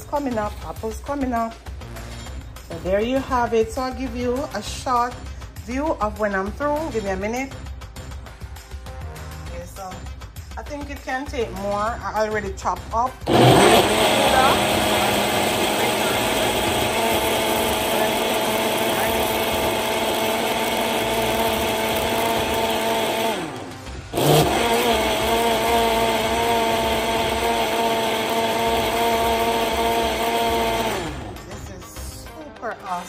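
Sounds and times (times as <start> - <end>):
blender motor running: 13.2 - 31.6.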